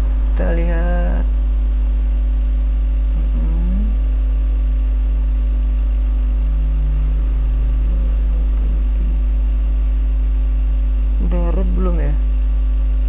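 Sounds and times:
low electrical mains hum: 0:00.0 - 0:13.0
faint wavering sounds: 0:03.0 - 0:12.3.

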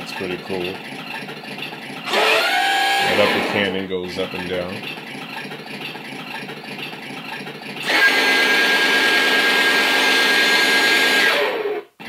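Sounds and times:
toy gear motor whirring: 0:02.0 - 0:03.7, 0:05.3 - 0:11.6.

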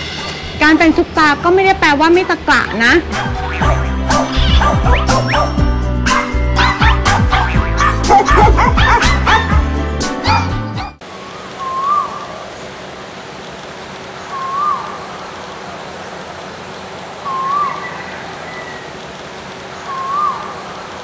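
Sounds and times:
whistle-like call: 0:11.6 - 0:12.4, 0:17.2 - 0:18.8, 0:19.9 - 0:20.6.

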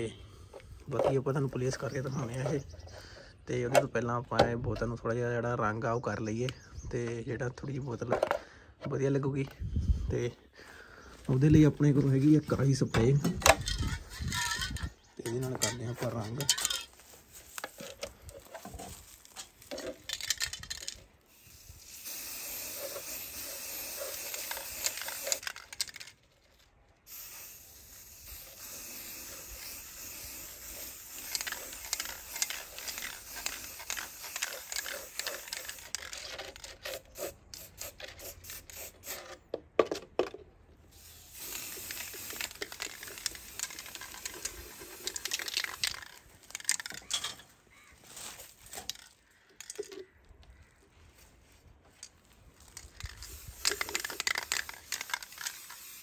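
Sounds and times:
spray paint can hissing: 0:13.5 - 0:14.9, 0:15.5 - 0:26.1, 0:27.1 - 0:39.4, 0:40.9 - 0:47.3, 0:52.0 - 0:56.0.

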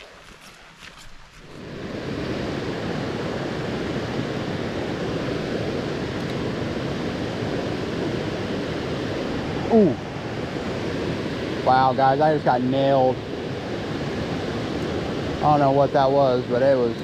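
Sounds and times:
footsteps on gravel: 0:00.0 - 0:01.6.

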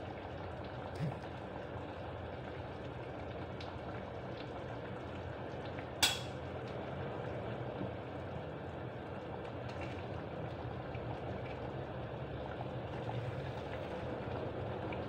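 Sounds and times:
food cooking in a pan: 0:00.0 - 0:15.0
utensil clinking on cookware: 0:06.0 - 0:06.4.

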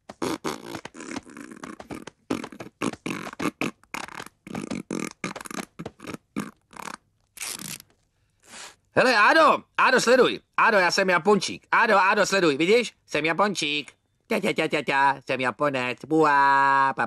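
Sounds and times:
man making beatbox mouth noises: 0:00.0 - 0:07.1.

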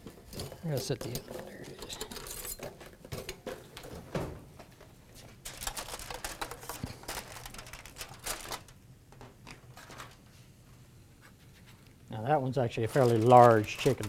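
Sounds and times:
aluminium foil crinkling: 0:05.4 - 0:08.8, 0:09.5 - 0:10.3, 0:12.6 - 0:14.0.

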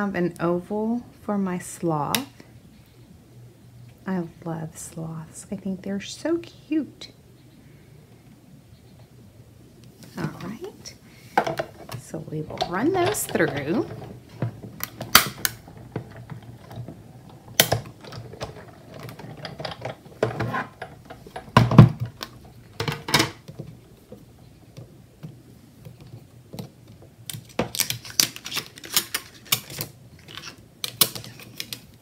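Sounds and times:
plastic clicks and clacks: 0:11.4 - 0:32.0.

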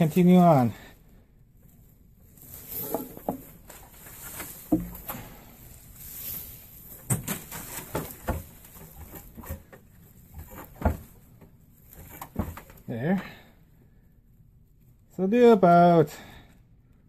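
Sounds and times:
rope rustling and swishing: 0:02.3 - 0:11.2
light taps and knocks: 0:04.7 - 0:05.2
dull thump: 0:04.7 - 0:05.4.

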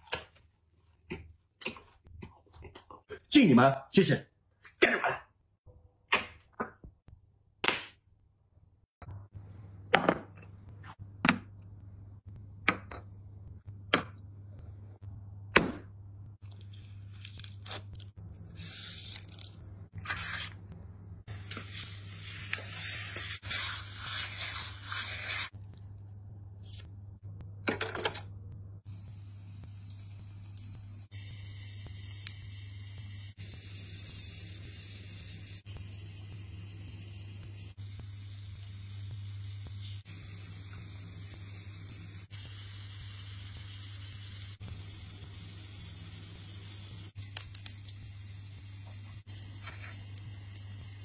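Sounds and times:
meat sizzling in a pan: 0:29.2 - 0:51.0.

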